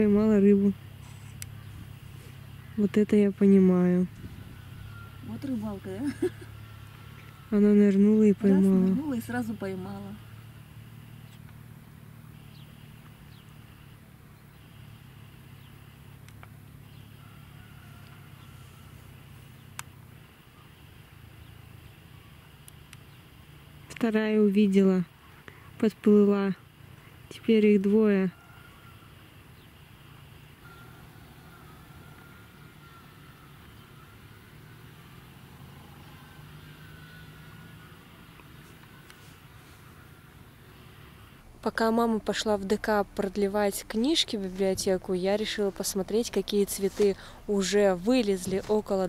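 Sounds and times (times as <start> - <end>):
thin wavering whine: 0.0 - 23.3, 27.8 - 49.0
distant engine humming: 0.0 - 49.0
low rumble: 40.6 - 49.0.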